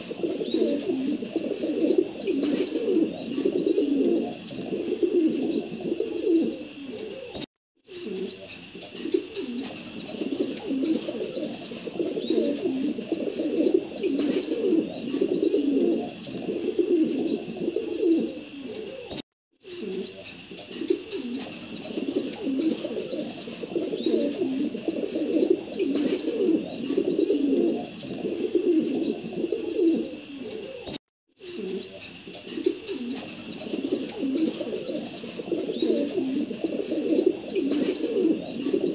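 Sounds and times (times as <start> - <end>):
pigeons cooing: 0.0 - 38.9.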